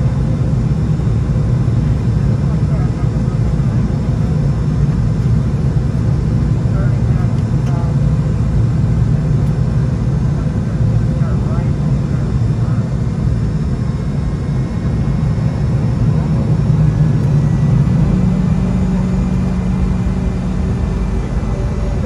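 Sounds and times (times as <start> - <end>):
airplane cabin low rumble: 0.0 - 22.0
low hum: 0.0 - 22.0.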